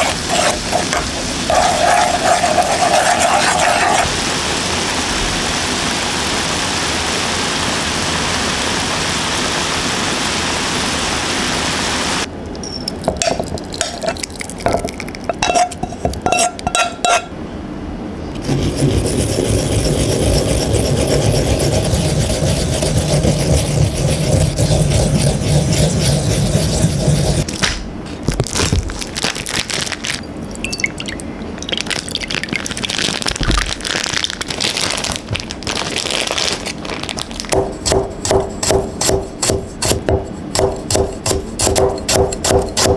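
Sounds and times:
ginger rubbed on ceramic grater: 0:00.0 - 0:04.1, 0:18.4 - 0:27.5
ginger sizzling in oil: 0:00.0 - 0:10.3
plastic pouch crinkling: 0:28.2 - 0:30.3, 0:31.7 - 0:37.6.

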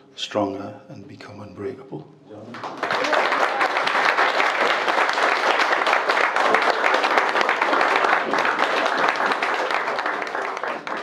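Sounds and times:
guests clapping and applauding: 0:02.5 - 0:11.0.

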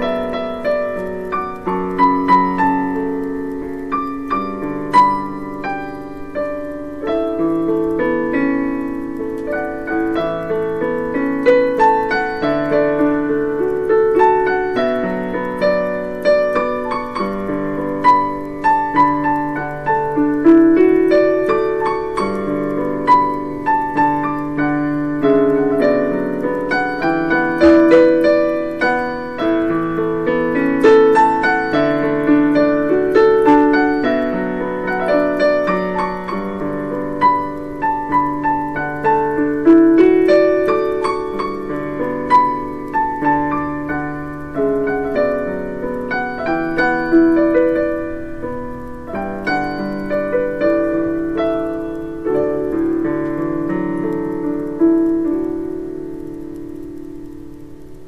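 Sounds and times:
digital piano playing: 0:00.0 - 0:58.0.

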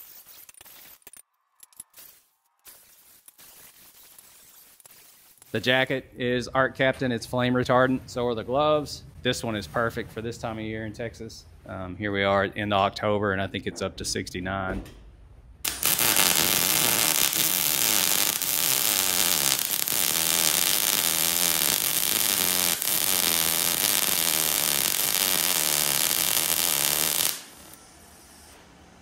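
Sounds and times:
welding arc crackling: 0:02.0 - 0:05.8, 0:15.6 - 0:27.9.

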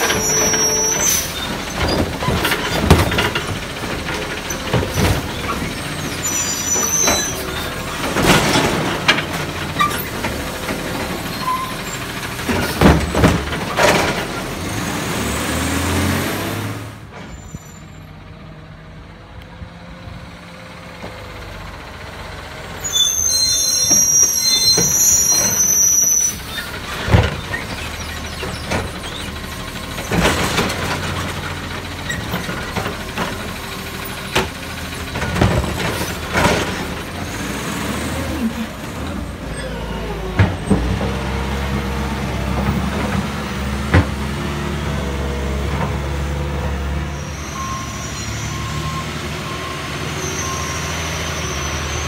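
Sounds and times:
high-pitched brake squeals: 0:00.0 - 0:02.8, 0:05.2 - 0:08.0, 0:11.2 - 0:12.0, 0:17.2 - 0:18.1, 0:22.8 - 0:30.2, 0:46.8 - 0:52.0
garbage truck engine running: 0:00.0 - 0:52.0.

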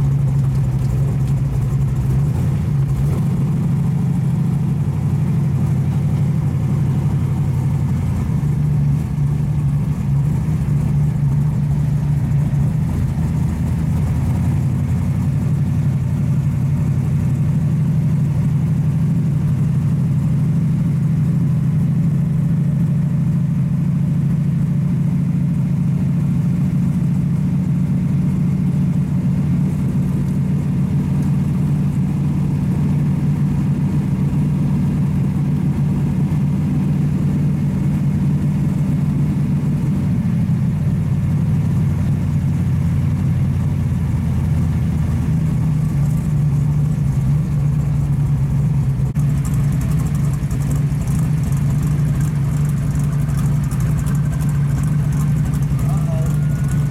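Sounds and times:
car engine deep drone: 0:00.0 - 0:56.9.

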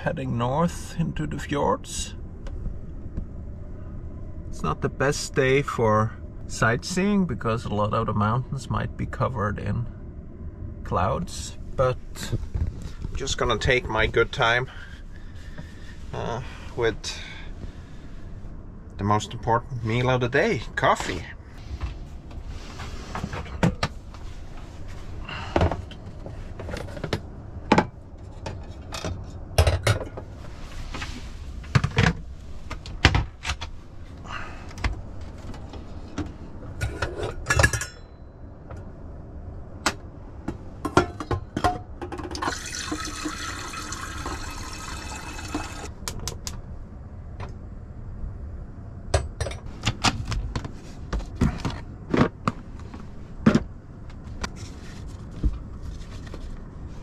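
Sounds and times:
metal coffee pot clinking: 0:40.9 - 0:45.9
water running: 0:42.4 - 0:45.9.

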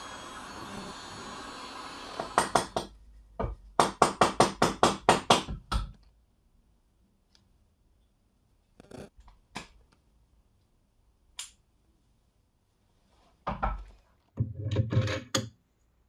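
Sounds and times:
heat gun blowing: 0:00.0 - 0:02.8.

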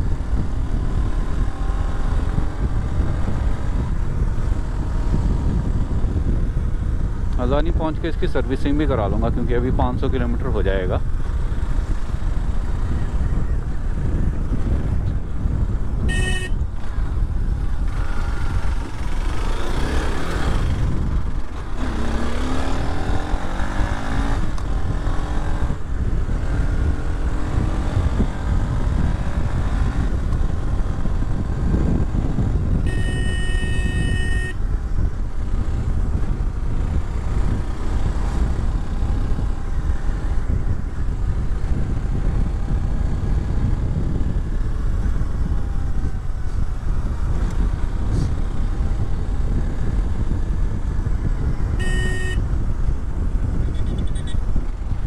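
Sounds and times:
motorcycle engine and wind rumble: 0:00.0 - 0:55.0
motorcycle horn: 0:16.0 - 0:16.7, 0:32.8 - 0:34.7, 0:51.7 - 0:52.6, 0:53.8 - 0:54.4.

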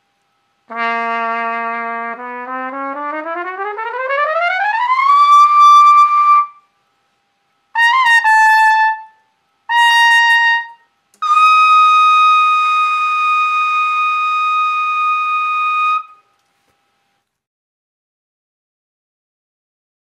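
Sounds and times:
solo trumpet: 0:00.6 - 0:06.7, 0:07.7 - 0:16.3.

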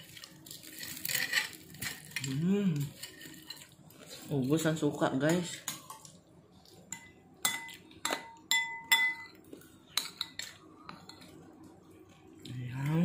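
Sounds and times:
metal spoon clinking against dishes: 0:05.2 - 0:06.2, 0:06.9 - 0:11.4.

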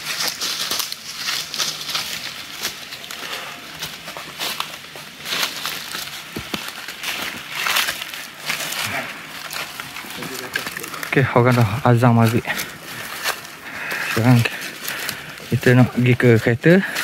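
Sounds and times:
footsteps crunching through dry leaves: 0:00.0 - 0:17.0.

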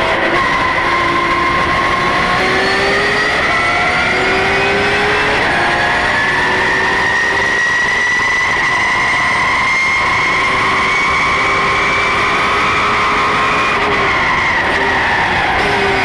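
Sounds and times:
race car engine under full load: 0:00.0 - 0:16.0.

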